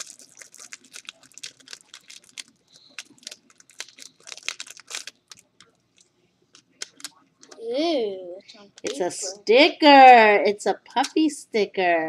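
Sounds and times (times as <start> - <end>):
plastic wrapper crinkling: 0.0 - 7.6.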